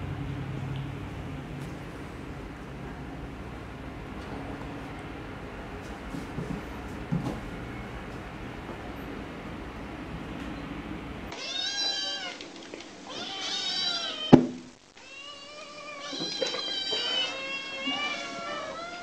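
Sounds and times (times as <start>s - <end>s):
low background noise: 0.0s - 19.0s
kittens meowing: 11.3s - 12.5s, 13.1s - 19.0s
sharp knock: 14.3s - 14.7s.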